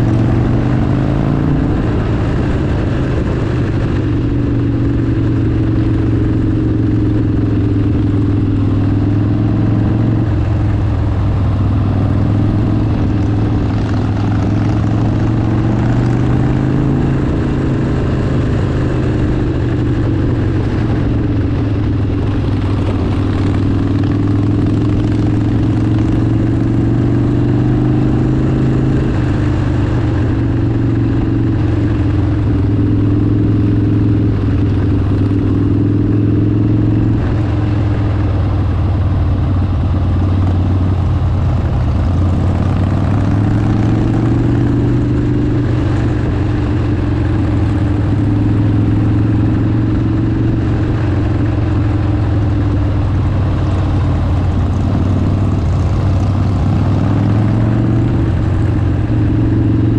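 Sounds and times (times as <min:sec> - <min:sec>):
motorcycle engine cruising: 0:00.0 - 0:59.9.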